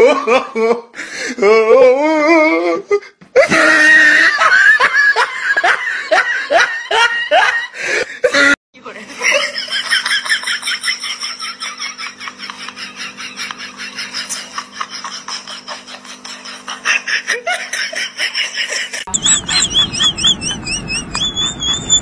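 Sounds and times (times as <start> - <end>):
person giggling rapidly: 3.4 - 8.6, 9.2 - 20.6.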